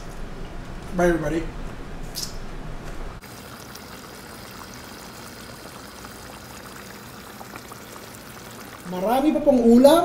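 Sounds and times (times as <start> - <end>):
stew bubbling in a pot: 3.2 - 9.9.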